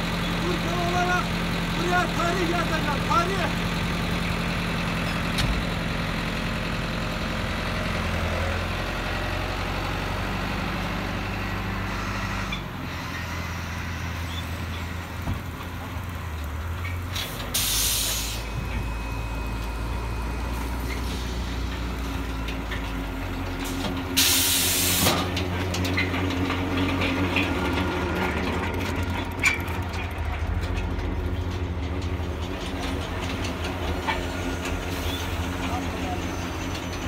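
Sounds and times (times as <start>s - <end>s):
packing machines humming: 18.4s - 37.0s.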